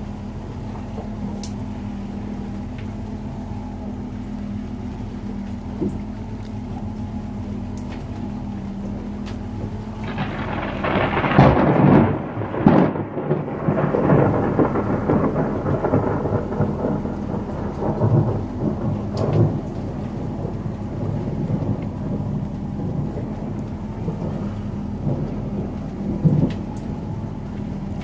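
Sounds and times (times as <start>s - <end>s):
outboard motor humming: 0.0s - 28.0s
thunder rumbling: 0.0s - 28.0s.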